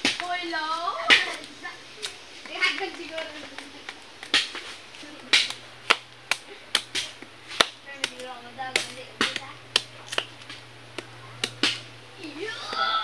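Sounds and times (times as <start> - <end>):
knife chopping bamboo shoot: 5.2 - 11.9.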